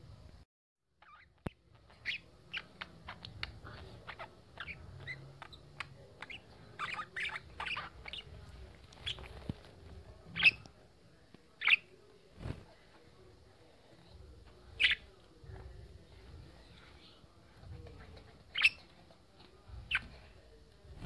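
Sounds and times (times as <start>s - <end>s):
budgerigar sharp calls: 14.8s - 15.0s.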